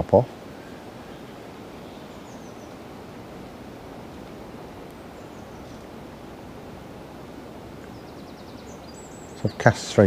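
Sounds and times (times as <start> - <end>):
leaves rustling: 0.0 - 10.0
faint high bird chirps: 0.6 - 2.9, 4.9 - 6.3, 7.7 - 10.0.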